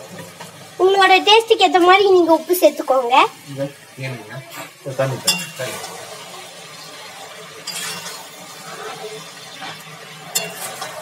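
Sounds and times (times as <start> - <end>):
food sizzling: 0.0 - 11.0
ladle clinking against pan: 5.3 - 5.6, 10.3 - 10.9
ladle scraping pan: 7.6 - 11.0.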